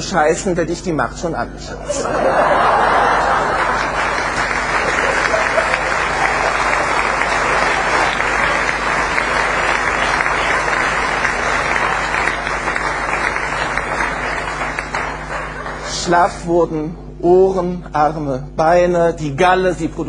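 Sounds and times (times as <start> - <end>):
audience applauding: 2.0 - 16.4.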